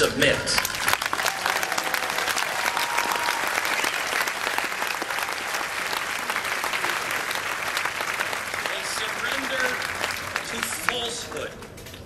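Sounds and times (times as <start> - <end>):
crowd applauding: 0.5 - 11.8.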